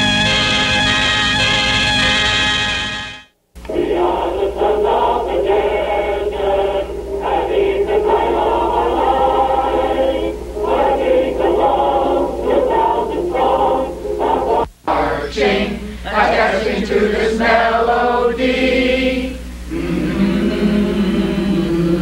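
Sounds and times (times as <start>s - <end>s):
steady low hum: 3.4s - 22.0s
group of voices singing: 3.6s - 22.0s.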